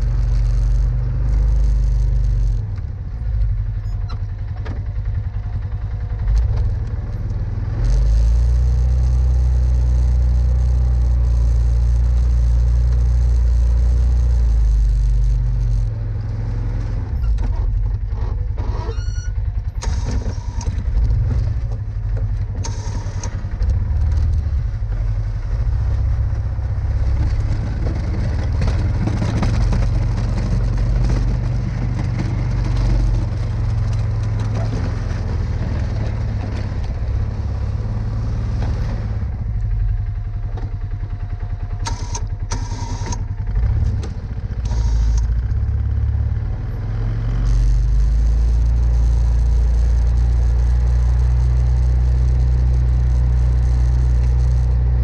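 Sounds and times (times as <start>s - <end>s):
atv engine revving: 0.0s - 55.0s
plow blade pushing snow: 0.0s - 55.0s.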